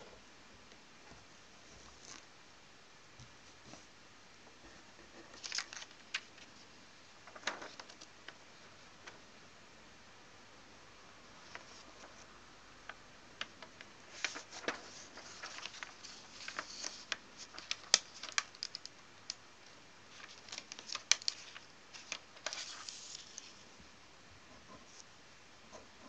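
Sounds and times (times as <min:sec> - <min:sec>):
paper crackling and rustling: 0:05.0 - 0:09.2, 0:11.4 - 0:23.6.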